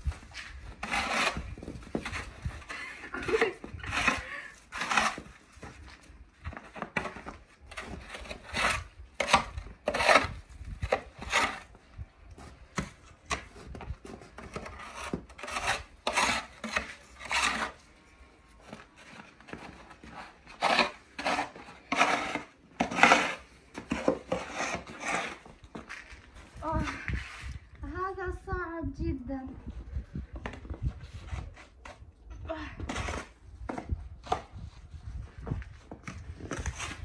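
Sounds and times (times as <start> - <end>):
metal shovel scraping snow: 0.2 - 5.5, 7.7 - 11.7, 14.5 - 17.9, 20.0 - 27.6.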